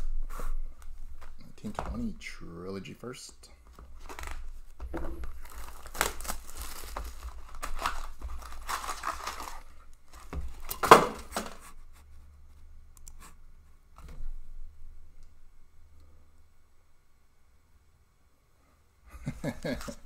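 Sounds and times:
cardboard box and card packs rustling: 0:03.6 - 0:11.7
plastic wrap crinkling and tearing: 0:03.9 - 0:11.6.

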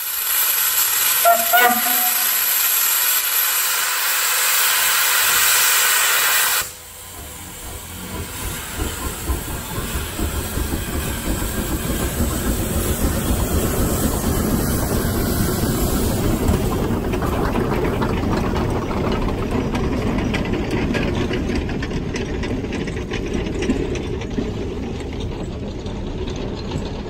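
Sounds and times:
steam hiss: 0:00.0 - 0:16.9
locomotive exhaust chuffs: 0:00.0 - 0:27.0
locomotive low rumble: 0:06.7 - 0:27.0.

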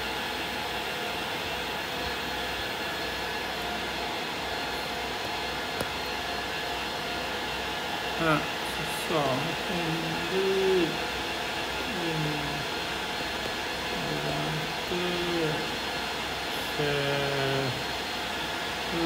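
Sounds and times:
steady background hiss: 0:01.6 - 0:19.0
man humming drawn-out syllables: 0:11.9 - 0:12.6, 0:14.0 - 0:15.7.

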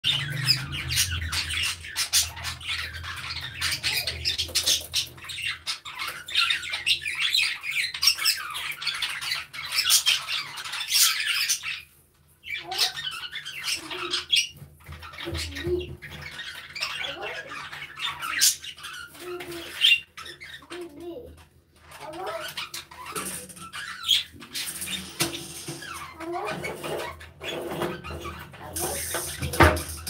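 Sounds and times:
budgerigars chattering and squawking: 0:00.0 - 0:30.0.

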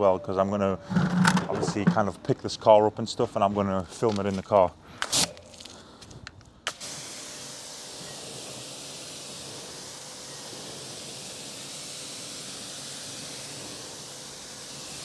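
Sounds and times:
pressure washer spraying water: 0:06.7 - 0:15.0.

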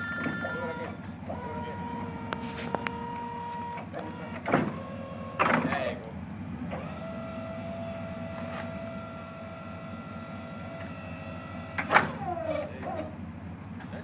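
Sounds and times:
hydraulic pump motor whine: 0:00.0 - 0:05.8, 0:06.6 - 0:13.1
loud clunk: 0:03.8 - 0:04.8, 0:11.8 - 0:13.1.

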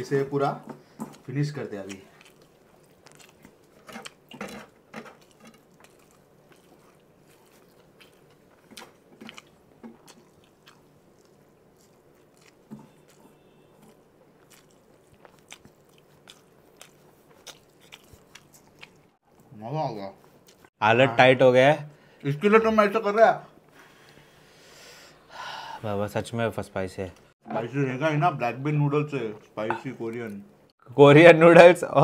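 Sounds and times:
man chewing food: 0:00.8 - 0:19.5, 0:20.2 - 0:20.8.

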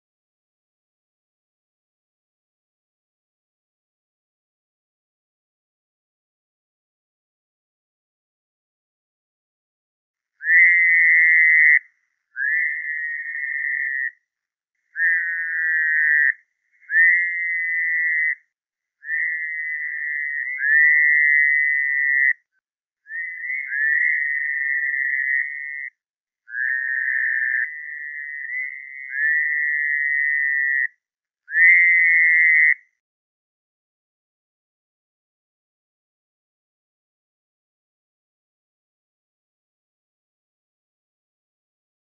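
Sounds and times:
toads buzzing calls: 0:10.4 - 0:14.2, 0:14.9 - 0:18.4, 0:19.0 - 0:22.4, 0:23.1 - 0:25.9, 0:26.5 - 0:30.9, 0:31.5 - 0:32.8.

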